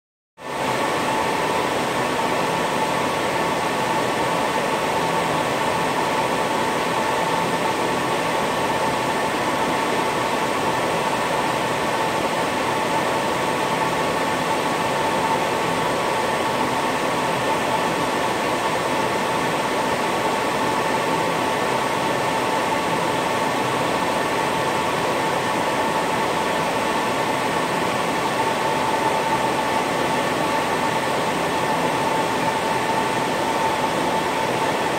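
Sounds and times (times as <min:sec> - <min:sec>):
cooling fans whining: 0:00.4 - 0:34.9.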